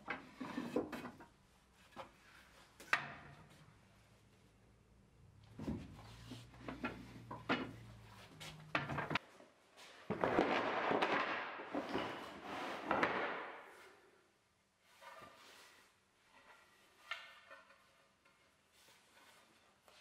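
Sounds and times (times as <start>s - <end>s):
boards scraping on a workbench: 0.2s - 1.2s, 11.8s - 13.4s
wooden boards knocking together: 10.1s - 13.6s.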